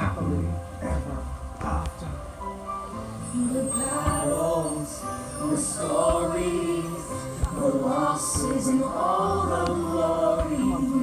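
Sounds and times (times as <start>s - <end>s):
music with choir singing: 1.9s - 11.0s
low firework thumps: 6.0s - 6.4s, 8.3s - 8.8s.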